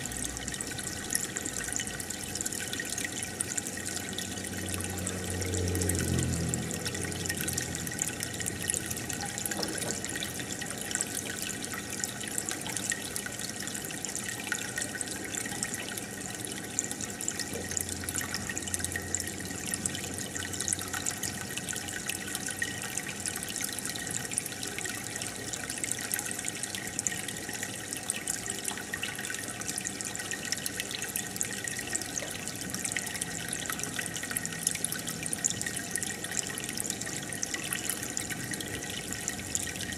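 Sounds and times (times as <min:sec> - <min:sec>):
aquarium air bubbles fizzing: 0:00.0 - 0:39.9
water trickling: 0:00.0 - 0:39.9.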